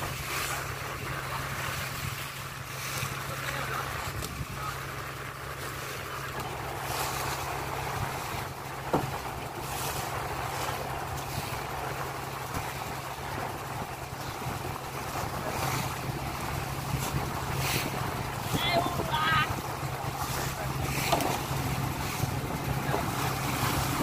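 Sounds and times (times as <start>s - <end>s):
boat engine humming: 0.0s - 24.0s
water rushing along hull: 0.0s - 24.0s
wind on microphone: 3.9s - 5.0s, 6.5s - 24.0s.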